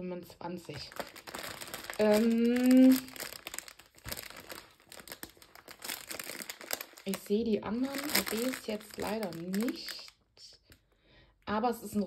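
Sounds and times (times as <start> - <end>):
plastic packaging crinkling: 0.7 - 10.2.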